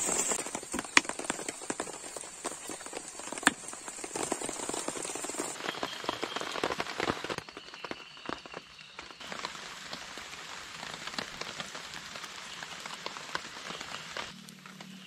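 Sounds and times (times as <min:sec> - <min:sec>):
heavy rain on tent fabric: 0:00.0 - 0:15.0.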